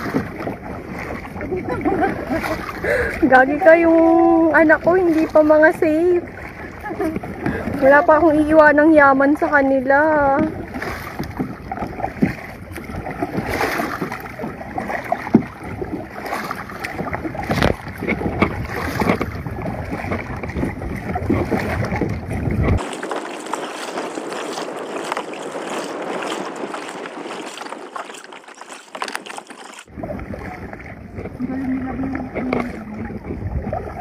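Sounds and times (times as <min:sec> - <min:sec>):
paddle splashing in water: 0:00.0 - 0:34.0
rushing water wash: 0:00.0 - 0:34.0
wind rumbling on microphone: 0:00.0 - 0:34.0.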